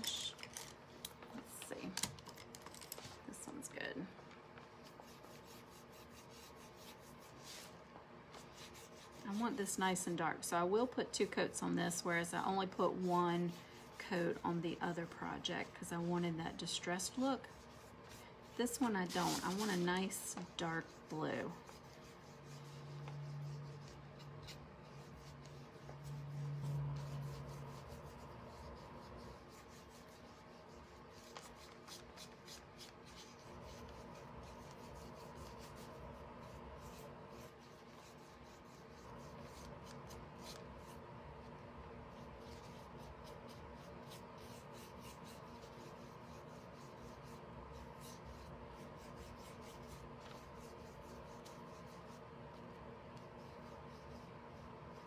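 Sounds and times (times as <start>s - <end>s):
low steady hum: 0.0s - 55.0s
paintbrush strokes on wood: 12.3s - 41.0s.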